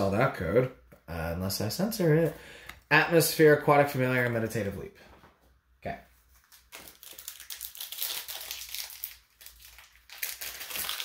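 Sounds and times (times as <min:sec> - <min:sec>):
foil wrapper crinkling: 0:06.3 - 0:11.0.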